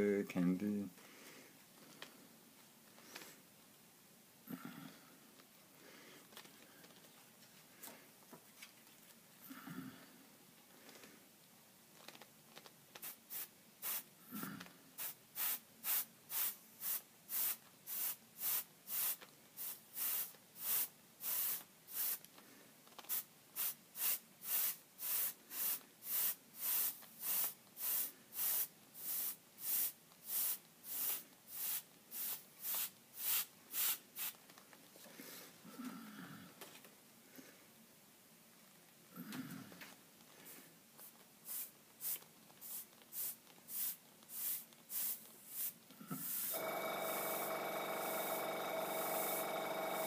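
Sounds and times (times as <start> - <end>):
airbrush spraying hissing spurts: 13.0 - 14.1, 15.0 - 22.3, 23.0 - 34.4, 41.0 - 47.4, 48.0 - 50.0.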